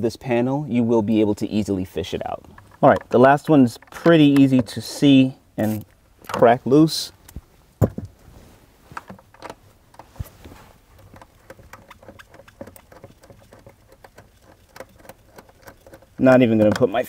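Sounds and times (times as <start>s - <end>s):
dull thud: 7.8s - 8.2s
ratchet clicking: 11.0s - 16.8s.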